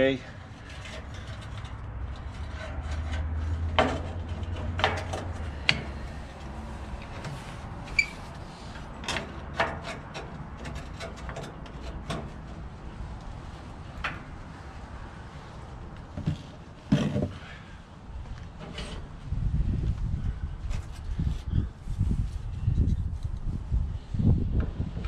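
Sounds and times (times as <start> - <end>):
metal grill parts clanking: 2.5 - 6.1.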